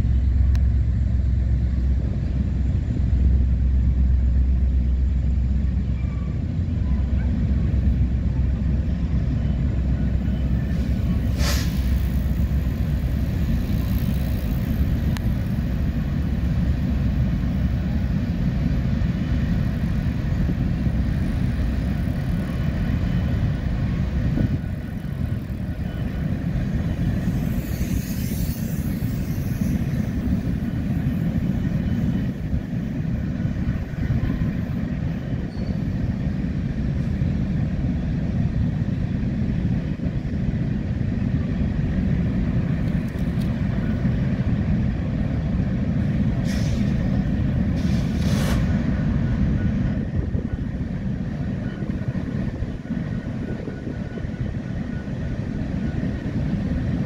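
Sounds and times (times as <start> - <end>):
diesel locomotives rumbling: 0.0 - 57.0
brief high hiss: 11.3 - 12.0, 46.4 - 47.0, 47.8 - 48.8.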